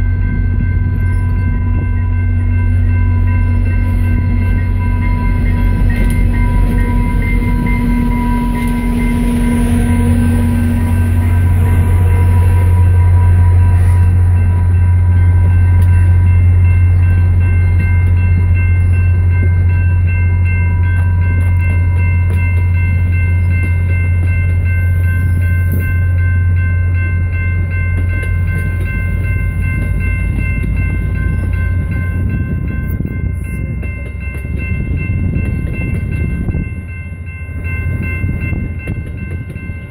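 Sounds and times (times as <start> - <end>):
crossing signal bell ringing: 0.0 - 39.9
diesel locomotive rumble: 0.0 - 39.9
train coaches rolling past: 0.0 - 39.9.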